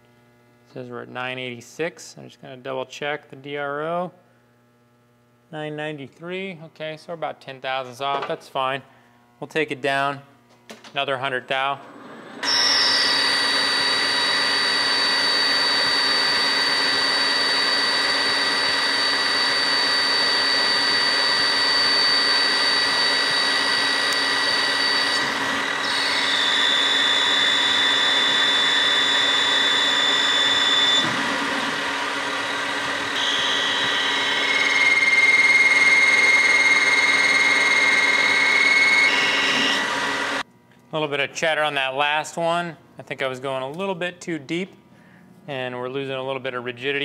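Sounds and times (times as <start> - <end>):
lathe cutting steel with chatter: 12.4 - 40.4.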